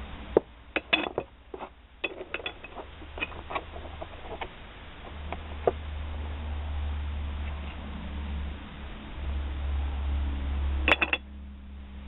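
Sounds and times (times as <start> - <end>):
low steady hum: 0.0 - 12.0
metal parts clinking and knocking: 0.8 - 5.8, 10.9 - 11.2.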